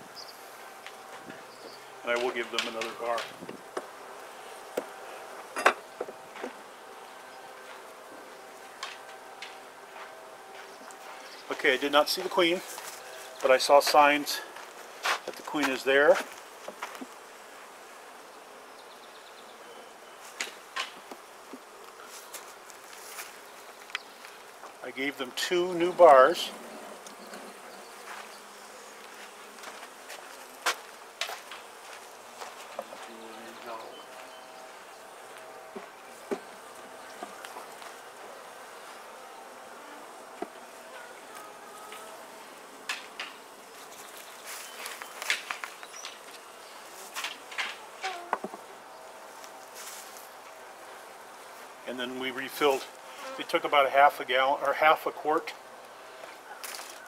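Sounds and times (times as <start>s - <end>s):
honeybees buzzing: 0.0s - 57.0s.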